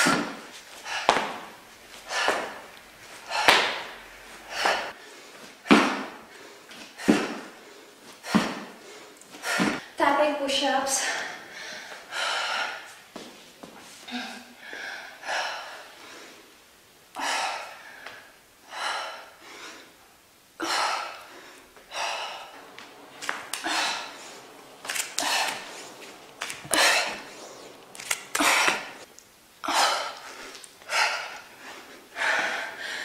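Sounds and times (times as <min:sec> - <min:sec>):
woman exhaling forcefully: 0:20.6 - 0:29.0.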